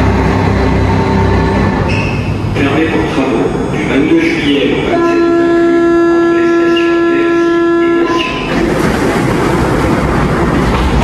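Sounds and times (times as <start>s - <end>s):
train rolling with low rumble: 0.0s - 11.0s
warning tone: 4.6s - 8.5s.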